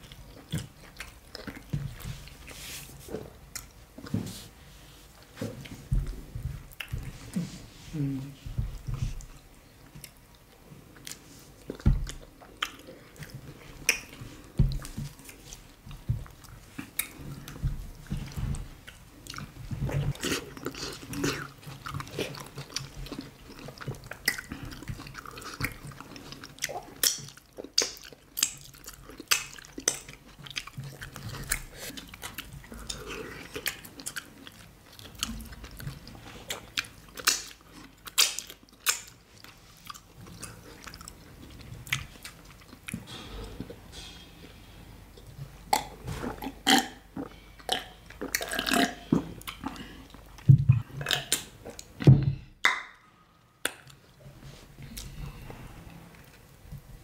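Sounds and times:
wet chewing and biting: 0.0 - 2.6, 8.7 - 43.1.

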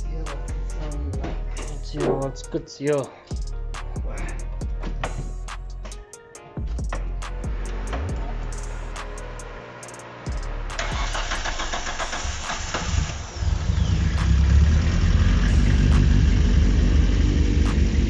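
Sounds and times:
car engine running: 7.5 - 18.0
starter motor cranking: 10.8 - 14.0.

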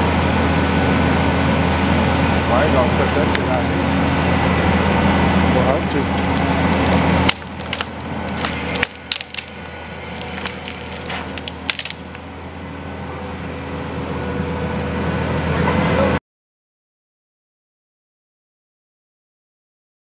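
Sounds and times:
diesel engine running: 0.0 - 16.2
branches cracking and snapping: 5.9 - 12.2.

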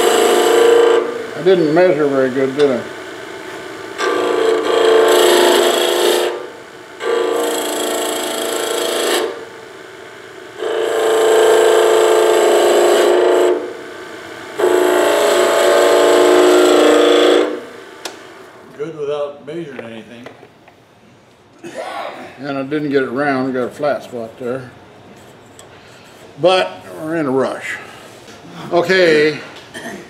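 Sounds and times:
chisel cutting wood on lathe: 0.0 - 1.0, 4.0 - 6.4, 7.0 - 9.4, 10.6 - 13.6, 14.6 - 18.2
lathe running: 0.0 - 18.6.

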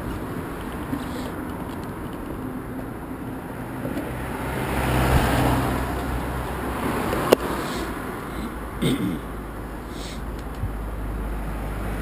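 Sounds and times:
road and wind noise: 0.0 - 12.0
van driving past: 3.2 - 12.0.

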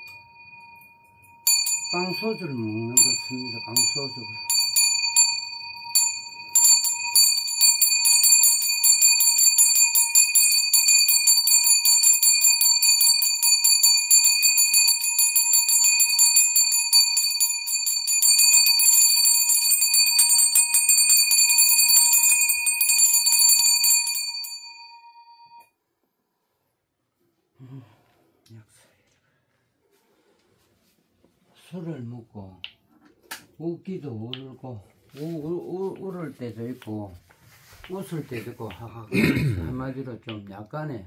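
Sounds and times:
handbell ringing: 0.0 - 25.7.

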